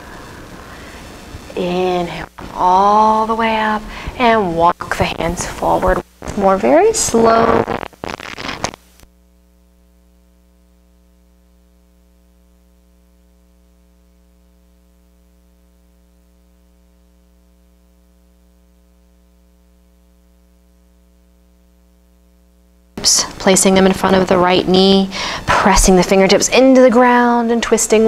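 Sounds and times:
electrical hum with hiss: 0:00.0 - 0:28.0
person speaking: 0:01.5 - 0:08.7.

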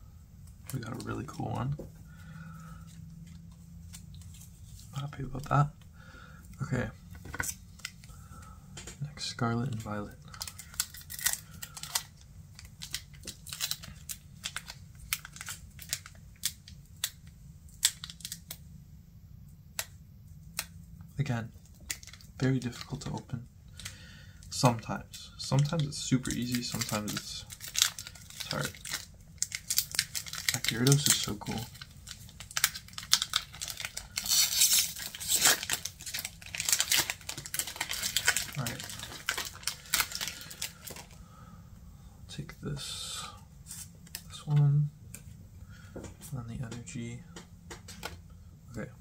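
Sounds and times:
foil wrapper crinkling and tearing: 0:09.6 - 0:18.6, 0:20.5 - 0:41.2.

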